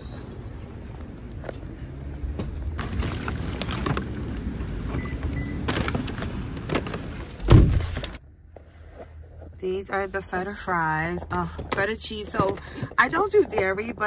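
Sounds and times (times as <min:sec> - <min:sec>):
takeout bag rustling: 0:02.8 - 0:08.2
heavy thump: 0:07.4 - 0:08.2.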